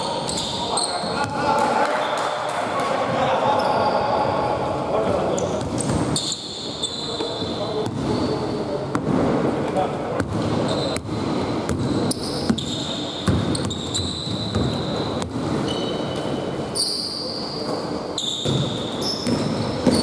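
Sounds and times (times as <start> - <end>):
sneaker squeaks: 0.0 - 1.4, 5.3 - 8.8, 10.4 - 20.0.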